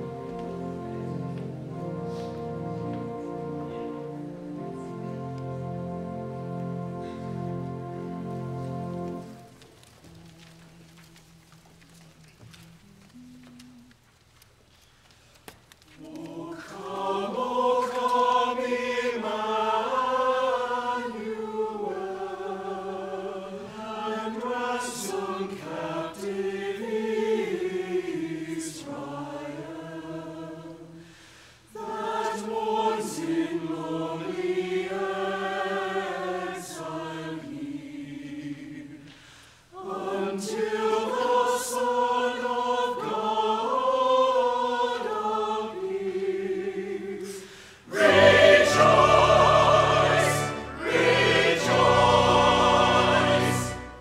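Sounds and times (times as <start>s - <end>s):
church choir singing: 0.0s - 13.9s, 15.9s - 54.0s.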